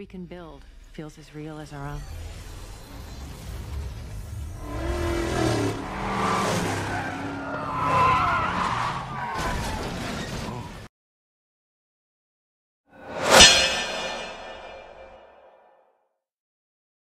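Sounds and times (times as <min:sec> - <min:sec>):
car engines revving: 0:04.0 - 0:10.1
tyres squealing and skidding: 0:04.6 - 0:10.8.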